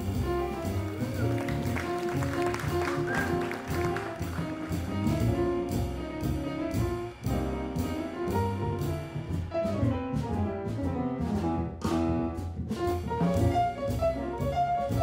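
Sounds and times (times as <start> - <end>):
trumpet melody: 0.0 - 5.4
piano: 0.0 - 15.0
walking double bass: 0.0 - 15.0.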